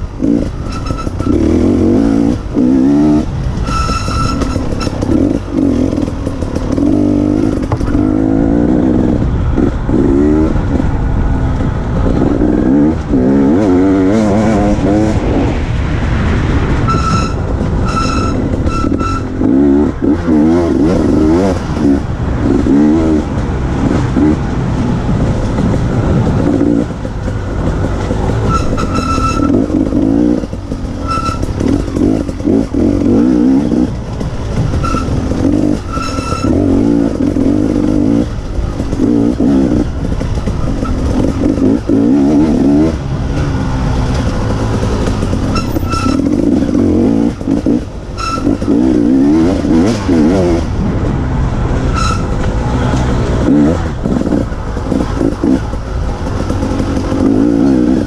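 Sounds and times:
dirt bike engine revving: 0.0s - 15.8s, 16.5s - 58.0s
short high-pitched tones: 16.9s - 19.3s.

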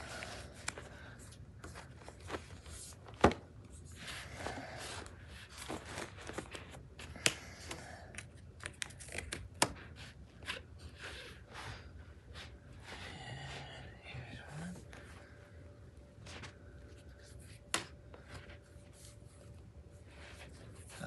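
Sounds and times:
rustling and scraping: 0.0s - 7.1s, 16.1s - 21.0s.

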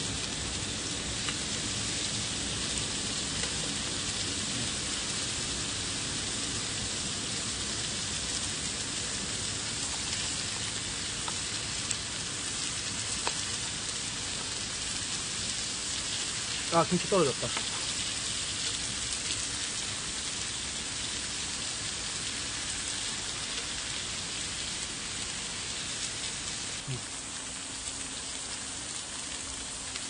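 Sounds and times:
pork sizzling on griddle: 0.0s - 30.0s
small pops and crackles: 1.2s - 1.5s, 2.1s - 5.2s, 7.8s - 23.8s, 25.9s - 30.0s.

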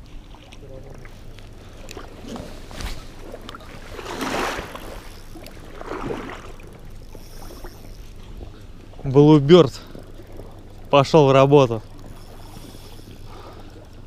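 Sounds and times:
splashing in shallow water: 1.8s - 7.9s.

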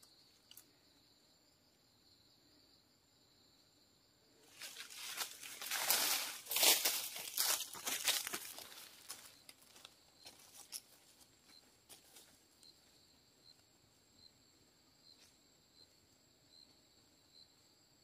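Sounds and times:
insect chirping: 0.0s - 18.0s
insects buzzing: 0.0s - 18.0s
footsteps crunching through dry leaves: 4.5s - 11.2s.

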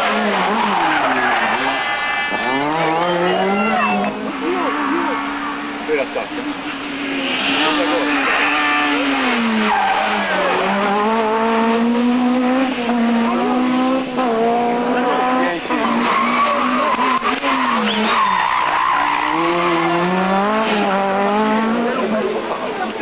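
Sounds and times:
rally car engine revving: 0.0s - 23.0s
tyre squeal: 0.1s - 5.6s, 15.7s - 20.1s.

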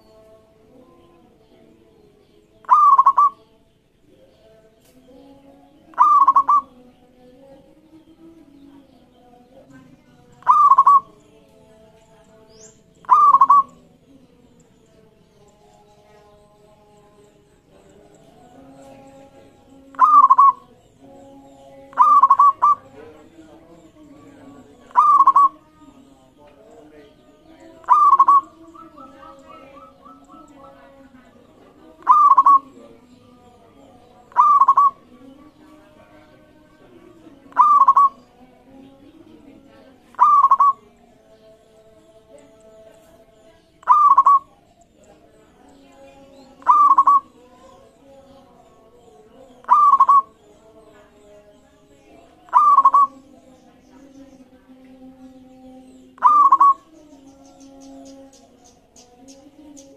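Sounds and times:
dove cooing: 2.6s - 3.5s, 5.9s - 6.8s, 10.4s - 11.2s, 13.0s - 13.9s, 19.9s - 20.7s, 21.9s - 25.6s, 27.7s - 32.8s, 34.3s - 35.1s, 37.4s - 38.3s, 40.1s - 40.8s, 43.8s - 44.6s, 46.6s - 47.9s, 49.5s - 50.4s, 52.4s - 53.3s, 56.2s - 57.0s.

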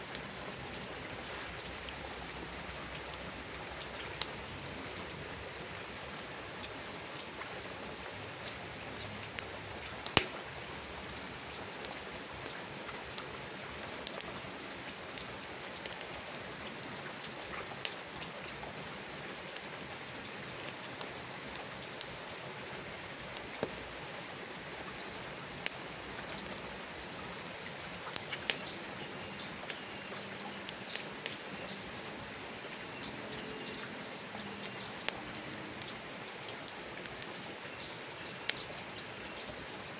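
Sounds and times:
rain hiss: 0.0s - 39.9s
campfire popping and crackling: 8.4s - 13.3s, 14.0s - 18.0s, 25.1s - 36.0s, 36.6s - 38.7s.

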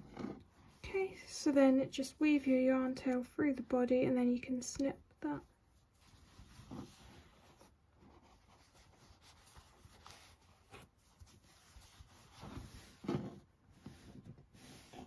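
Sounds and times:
fingers rubbing yarn: 5.4s - 15.0s.

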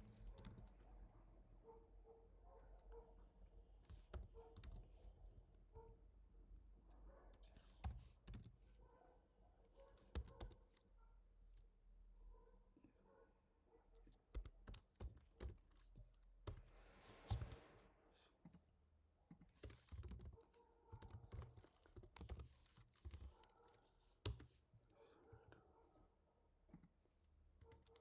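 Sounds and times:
typing on computer keyboard: 0.0s - 0.9s, 3.9s - 5.1s, 7.6s - 8.6s, 9.8s - 10.8s, 14.1s - 16.7s, 19.3s - 24.6s, 27.6s - 28.0s.

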